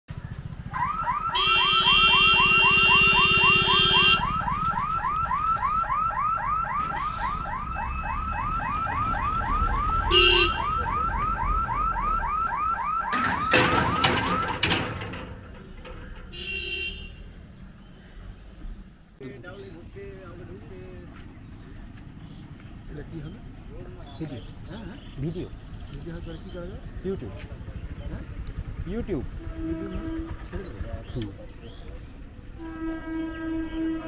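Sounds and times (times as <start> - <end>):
level crossing warning siren: 0.6 - 14.8
vehicle horn honking: 1.4 - 4.3, 10.1 - 10.8, 16.3 - 17.2, 29.3 - 30.8, 32.6 - 34.0.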